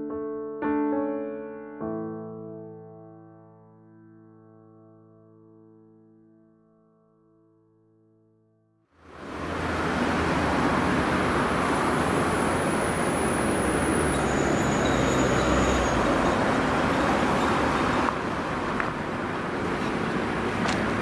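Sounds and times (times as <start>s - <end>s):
highway traffic rushing: 9.0s - 21.0s.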